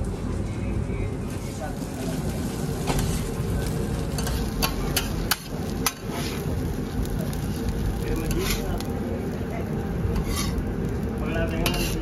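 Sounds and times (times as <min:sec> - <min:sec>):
metal spatula scraping a griddle: 0:02.5 - 0:03.4, 0:04.1 - 0:06.6, 0:08.2 - 0:08.8, 0:10.1 - 0:10.7, 0:11.4 - 0:12.0
spatula clacking on hot plate: 0:04.1 - 0:06.4, 0:11.6 - 0:12.0.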